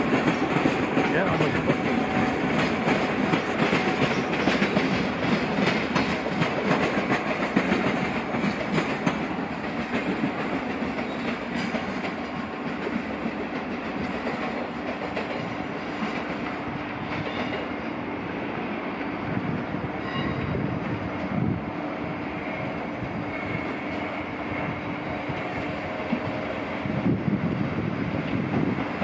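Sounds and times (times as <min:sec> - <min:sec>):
wheels clicking over rail joints: 0:00.0 - 0:17.8
electric train running on rails: 0:00.0 - 0:29.0.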